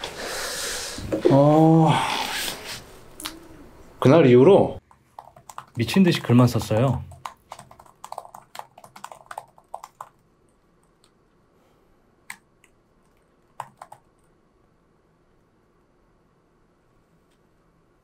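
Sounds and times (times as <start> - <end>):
typing on laptop keyboard: 4.9 - 10.2, 12.3 - 14.3.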